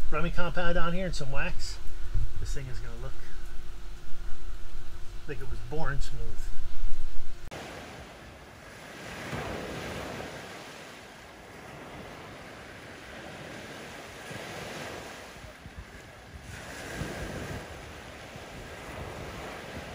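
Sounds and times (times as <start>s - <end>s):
wind on microphone: 0.0s - 19.9s
surf waves breaking on sand: 7.5s - 19.9s.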